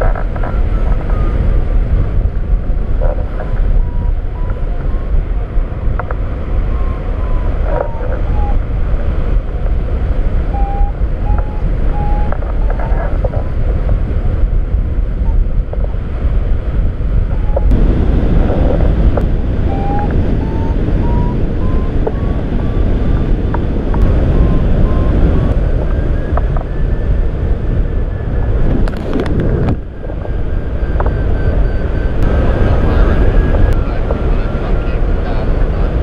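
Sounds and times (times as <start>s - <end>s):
wind rushing over microphone: 0.0s - 36.0s
variometer beeping: 19.0s - 22.9s, 23.5s - 26.7s.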